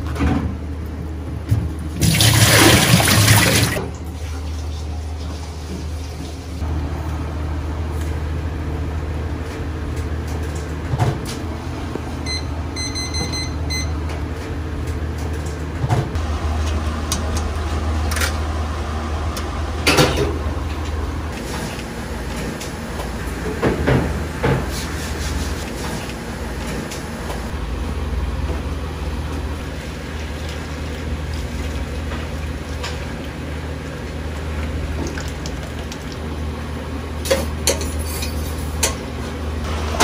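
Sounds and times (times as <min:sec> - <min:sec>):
water running from a tap: 0:02.0 - 0:03.8.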